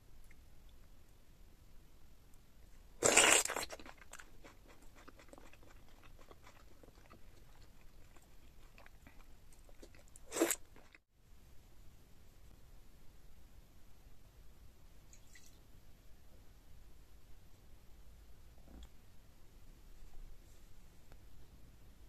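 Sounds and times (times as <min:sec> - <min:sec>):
loud bite: 0:03.0 - 0:07.2, 0:09.8 - 0:11.0
chewing with mouth clicks: 0:03.0 - 0:11.0.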